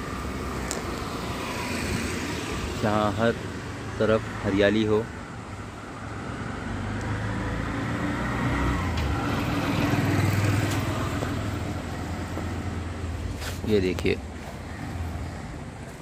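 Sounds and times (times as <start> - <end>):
vehicle engine passing: 6.1 - 15.8.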